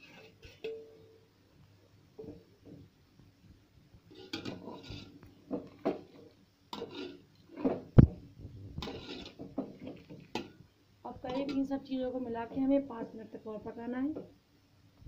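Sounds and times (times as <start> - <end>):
spoon scraping metal pot: 0.0 - 0.8, 4.1 - 7.9, 8.8 - 10.5, 11.2 - 11.7.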